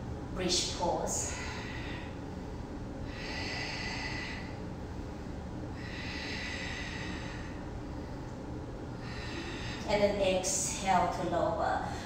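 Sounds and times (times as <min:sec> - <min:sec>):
low room rumble: 0:00.0 - 0:12.0
person breathing slowly: 0:01.2 - 0:09.9.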